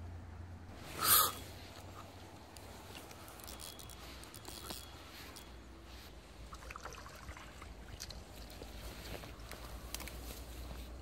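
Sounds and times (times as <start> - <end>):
light rustles and clicks: 1.7 - 6.1, 8.0 - 11.0.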